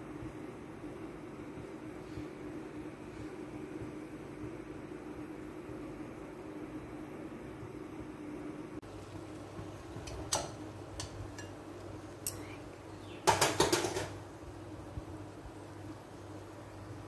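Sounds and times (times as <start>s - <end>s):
steady low hum: 0.0s - 17.0s
dishes clattering: 13.2s - 14.2s.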